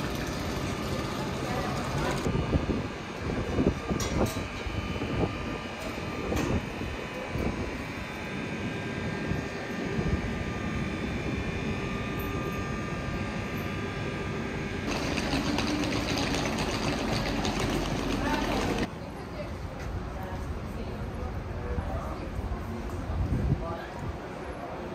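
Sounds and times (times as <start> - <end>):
electric locomotive humming: 0.0 - 18.9.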